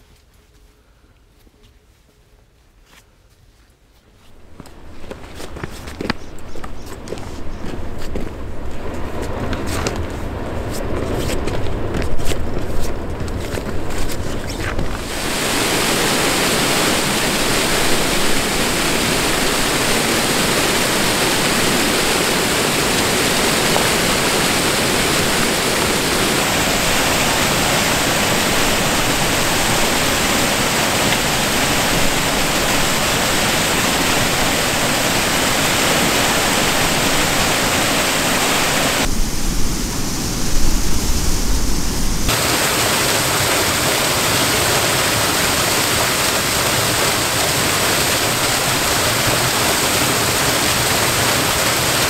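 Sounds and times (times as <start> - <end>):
waterfall rushing: 14.9 - 52.0
low rumble: 36.3 - 42.3.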